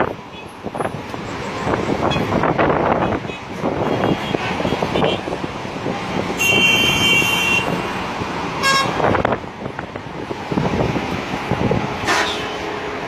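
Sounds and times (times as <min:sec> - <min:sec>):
road traffic: 0:00.0 - 0:13.0
car horns honking: 0:02.0 - 0:05.4, 0:06.3 - 0:08.0, 0:08.6 - 0:09.2, 0:12.0 - 0:12.6.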